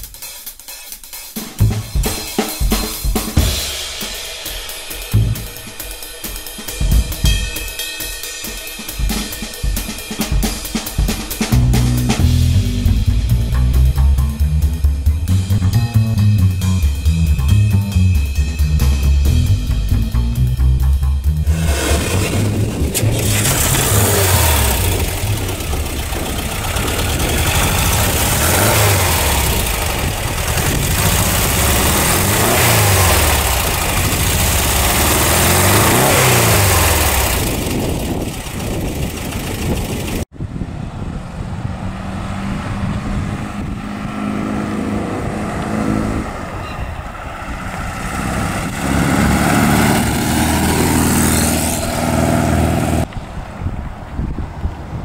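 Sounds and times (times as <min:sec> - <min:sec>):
engine revving: 0:05.1 - 0:05.7, 0:11.3 - 0:40.3, 0:41.3 - 0:46.6, 0:47.6 - 0:53.1
van pulling away: 0:11.4 - 0:40.3, 0:41.2 - 0:53.1.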